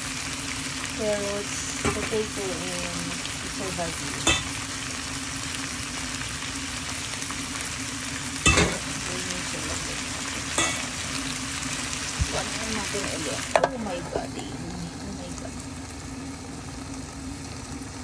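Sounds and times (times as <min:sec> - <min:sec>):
food sizzling in a frying pan: 0:00.0 - 0:18.0.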